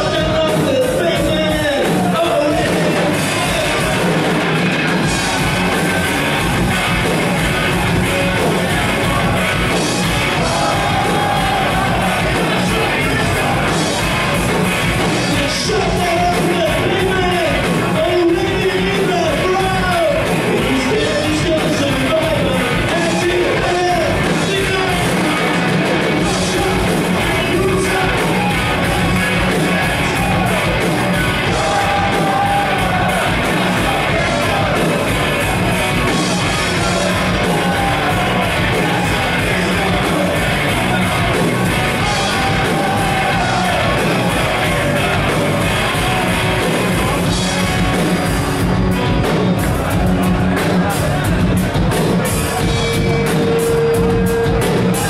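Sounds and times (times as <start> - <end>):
live rock band playing: 0.0 - 55.0
person shouting singing: 8.7 - 14.4, 15.2 - 47.2.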